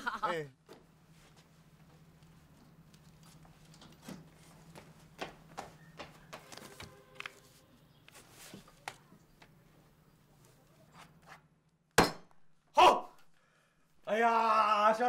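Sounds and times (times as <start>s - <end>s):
knocks and rustles of people moving: 0.6s - 11.6s.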